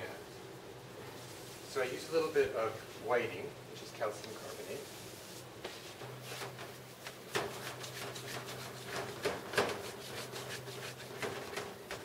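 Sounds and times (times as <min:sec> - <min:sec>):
hand wiping a metal plate: 0:04.5 - 0:12.0.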